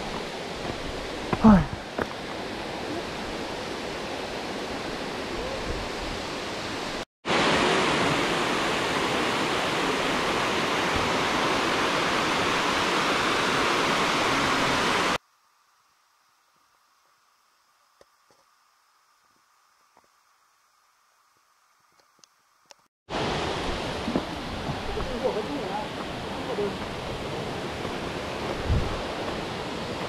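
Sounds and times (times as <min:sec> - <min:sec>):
waterfall rushing: 0:00.0 - 0:15.2, 0:23.1 - 0:30.0.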